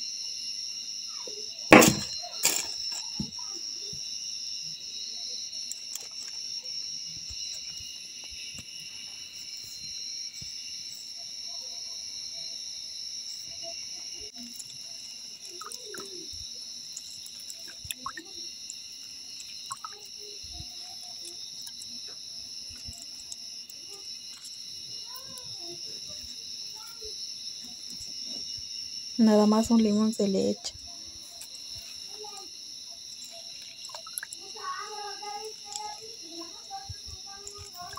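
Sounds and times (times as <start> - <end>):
insects chirring: 0.0 - 37.9
kitchen work knocks and clicks: 1.7 - 2.7.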